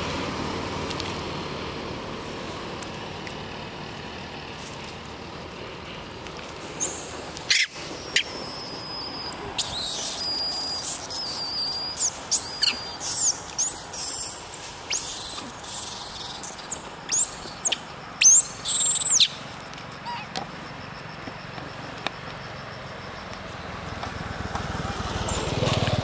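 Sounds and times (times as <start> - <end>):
baby monkey crying: 6.8 - 19.3.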